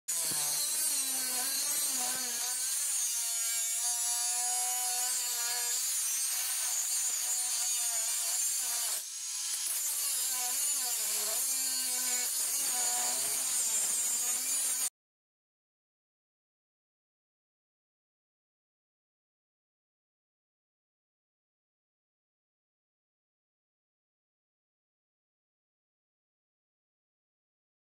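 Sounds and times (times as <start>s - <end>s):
angle grinder cutting steel: 0.1s - 14.9s.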